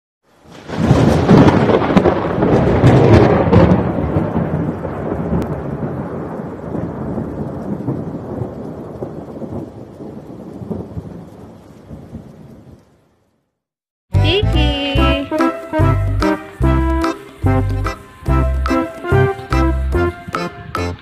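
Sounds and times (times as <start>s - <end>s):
thunder cracking and rumbling: 0.4s - 12.8s.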